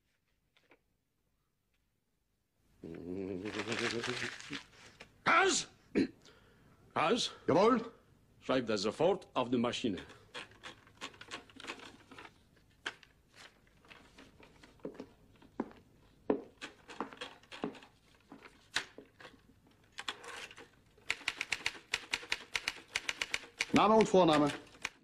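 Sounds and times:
paper rustling: 0:03.4 - 0:05.1, 0:10.3 - 0:20.8
typewriter keystrokes: 0:21.0 - 0:25.0.

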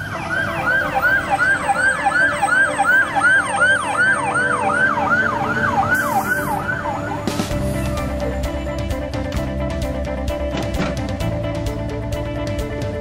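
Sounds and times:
fire engine siren yelping: 0:00.0 - 0:08.3
truck engine rumble: 0:00.0 - 0:13.0.

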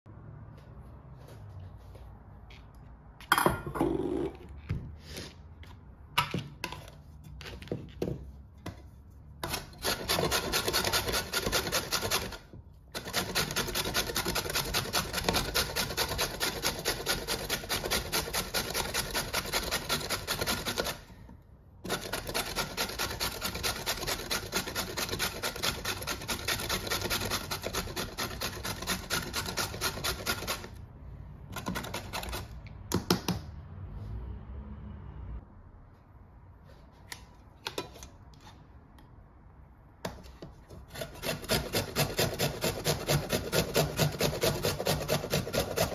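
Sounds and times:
carrot rasping on metal grater: 0:09.4 - 0:21.0, 0:21.8 - 0:30.8, 0:31.6 - 0:32.6, 0:40.8 - 0:45.9.

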